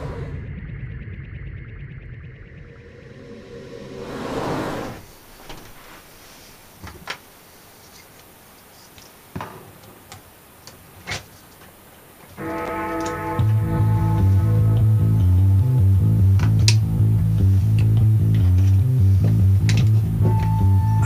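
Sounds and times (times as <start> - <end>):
rising and falling whoosh: 0.0 - 6.2.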